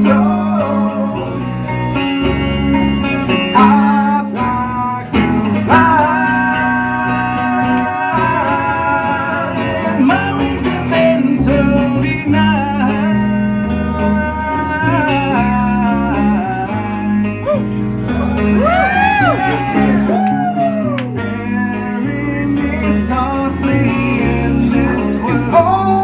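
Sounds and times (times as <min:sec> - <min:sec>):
man singing: 0:00.0 - 0:01.8, 0:03.4 - 0:26.0
acoustic guitars strummed: 0:00.0 - 0:26.0.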